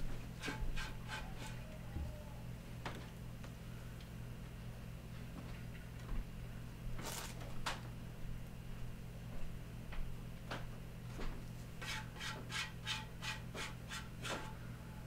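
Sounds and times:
steady low hum: 0:00.0 - 0:15.0
paste scraping and rubbing on wood: 0:00.4 - 0:01.6, 0:11.8 - 0:14.4.

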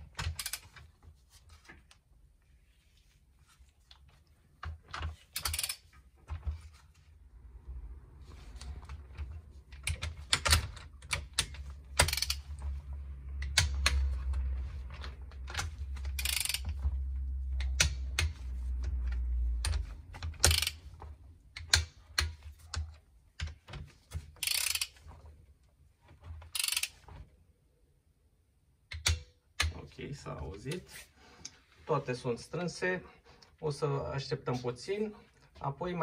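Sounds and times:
torque wrench ratcheting: 0:00.3 - 0:00.8, 0:05.4 - 0:05.8, 0:09.8 - 0:12.6, 0:16.1 - 0:16.8, 0:20.4 - 0:20.9, 0:24.4 - 0:25.0, 0:26.5 - 0:27.0.

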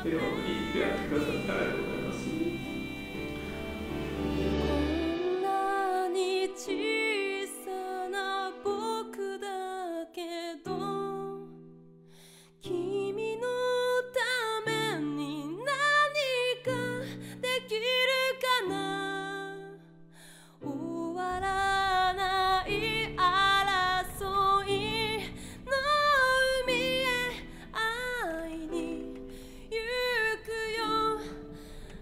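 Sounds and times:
low bass: 0:00.0 - 0:05.4
instrumental chords: 0:00.0 - 0:08.7
woman singing with vibrato: 0:00.0 - 0:11.5, 0:12.6 - 0:19.8, 0:20.6 - 0:32.0.

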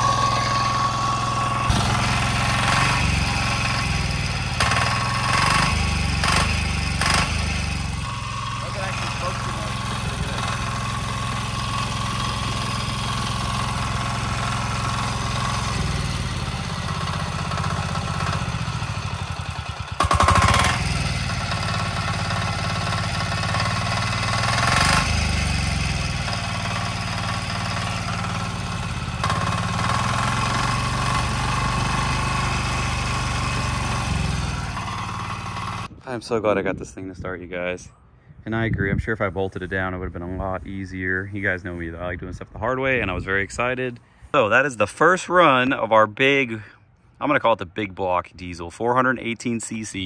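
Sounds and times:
single-cylinder diesel engine running: 0:00.0 - 0:35.9.

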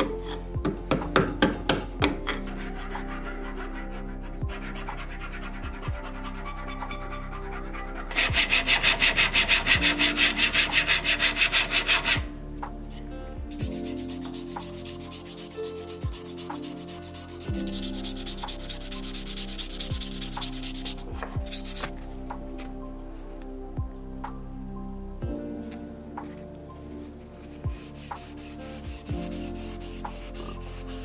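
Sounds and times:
file rasping on wood: 0:08.1 - 0:12.2
sandpaper rubbing on wood: 0:08.1 - 0:12.3, 0:13.8 - 0:21.9, 0:27.8 - 0:31.0.

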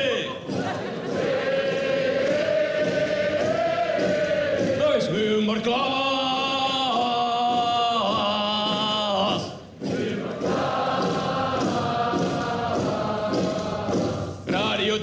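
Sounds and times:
audience singing in unison: 0:00.4 - 0:14.5
man singing lead: 0:04.8 - 0:09.6.

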